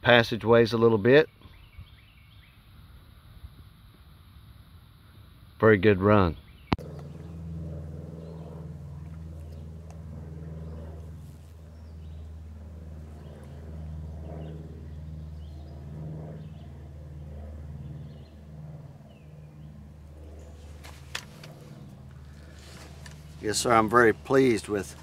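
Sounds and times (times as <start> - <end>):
low rumbling hum: 6.4 - 25.0.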